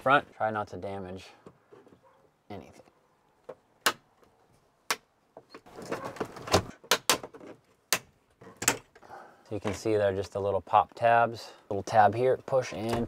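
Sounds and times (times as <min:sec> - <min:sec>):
plastic scraping and rattling: 0:05.4 - 0:07.7.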